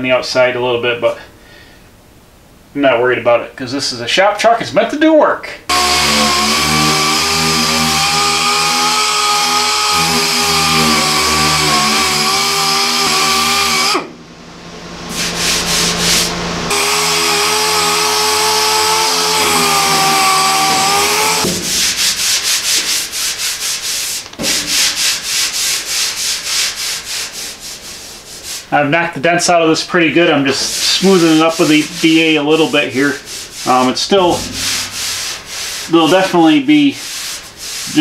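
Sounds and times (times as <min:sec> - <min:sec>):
sander whining: 0:05.7 - 0:26.5, 0:30.4 - 0:36.3
rubbing strokes on metal panel: 0:15.1 - 0:28.8, 0:30.4 - 0:38.0.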